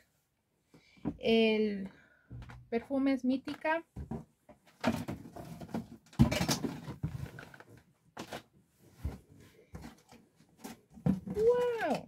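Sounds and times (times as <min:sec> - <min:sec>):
items rustling and knocking: 0:02.3 - 0:02.8, 0:03.4 - 0:12.0
items clattering: 0:04.0 - 0:12.0.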